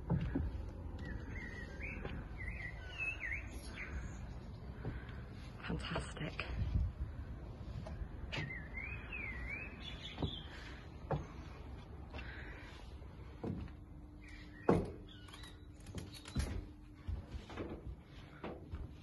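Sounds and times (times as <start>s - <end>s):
birds chirping and warbling: 0.0s - 17.2s.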